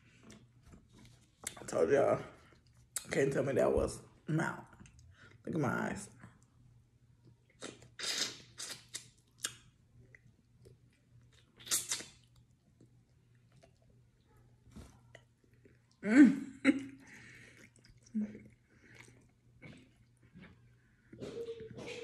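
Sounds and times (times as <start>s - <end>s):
chewing crunchy fried food: 7.2s - 14.2s, 15.0s - 16.0s, 17.0s - 21.2s.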